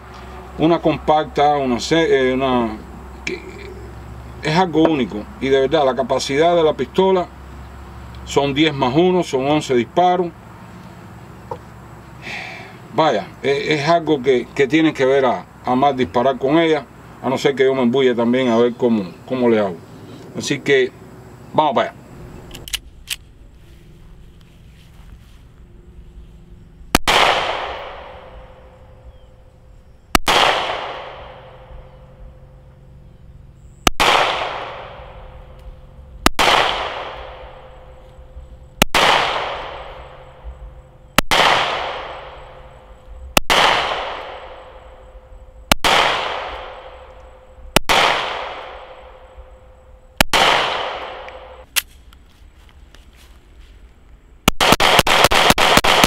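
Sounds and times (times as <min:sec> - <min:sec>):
sharp click: 0:22.5 - 0:23.3
pistol shots with echo: 0:26.9 - 0:28.8, 0:30.1 - 0:31.9, 0:33.8 - 0:35.4, 0:36.2 - 0:37.8, 0:38.8 - 0:40.3, 0:41.2 - 0:42.7, 0:43.4 - 0:44.8, 0:45.7 - 0:47.1, 0:47.8 - 0:49.3, 0:50.2 - 0:51.6, 0:54.5 - 0:56.0.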